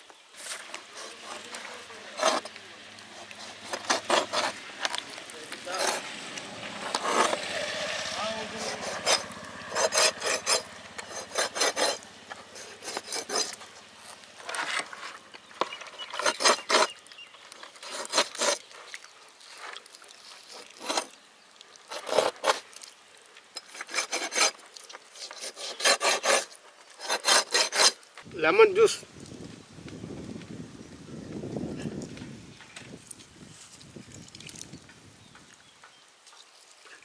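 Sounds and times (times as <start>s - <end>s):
knife cutting meat on metal tray: 3.1s - 4.6s, 8.4s - 13.6s, 16.2s - 17.0s.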